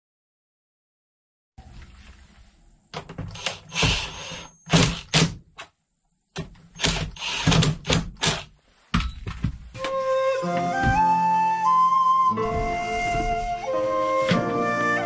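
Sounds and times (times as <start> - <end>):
cordless drill driving screws: 3.3 - 4.5, 6.8 - 8.4.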